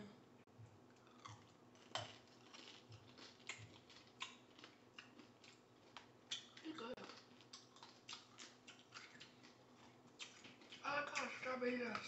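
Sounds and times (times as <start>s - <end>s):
candy shell crunching and cracking: 1.0s - 9.6s.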